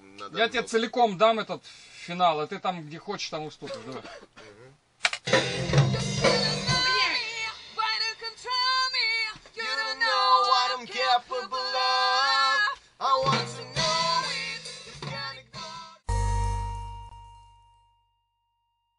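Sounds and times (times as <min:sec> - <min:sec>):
person singing: 0:05.4 - 0:08.8, 0:09.6 - 0:16.1.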